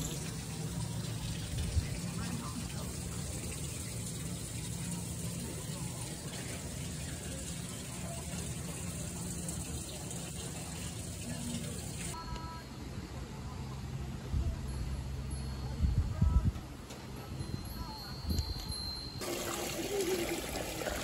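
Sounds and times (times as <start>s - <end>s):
running water rushing: 0.0s - 12.2s, 19.2s - 21.0s.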